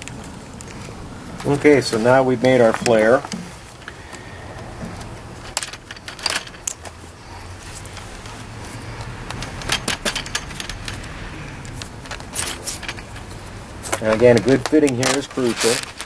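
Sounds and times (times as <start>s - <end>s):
metallic clicks and clinks: 5.4s - 6.9s, 7.9s - 16.0s.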